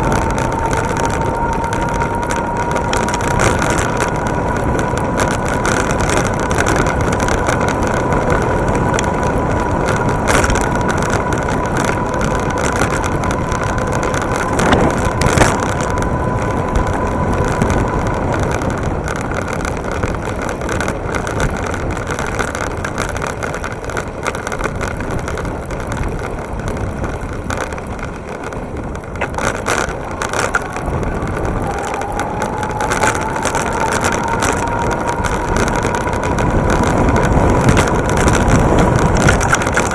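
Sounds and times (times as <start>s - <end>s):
electric motor whine: 0.0s - 20.1s, 29.2s - 39.9s
wind and road noise: 0.0s - 39.9s.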